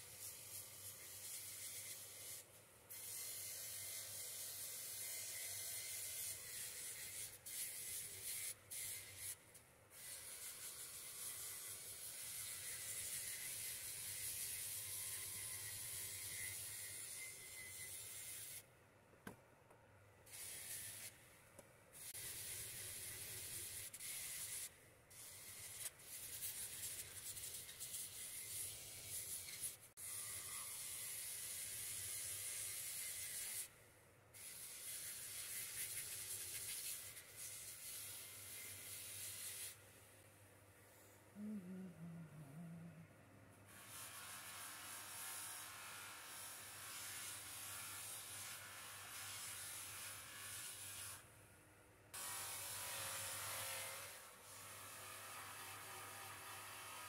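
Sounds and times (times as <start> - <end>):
metal hissing on polishing wheel: 22.0 - 33.7
low motor hum: 41.4 - 43.2.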